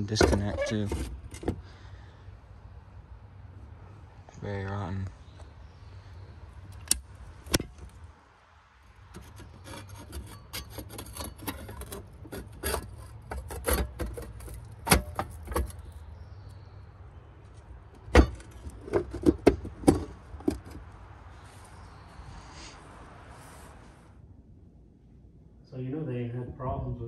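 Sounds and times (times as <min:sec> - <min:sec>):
handling clicks and scrapes: 0:00.0 - 0:01.7, 0:09.1 - 0:16.1, 0:17.4 - 0:21.8.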